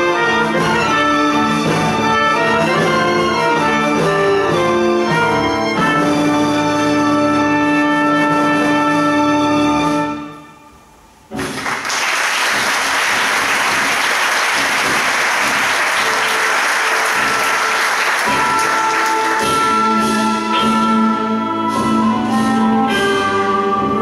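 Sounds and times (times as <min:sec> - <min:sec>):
instrumental band playing: 0:00.0 - 0:24.0
audience applause: 0:11.4 - 0:19.5.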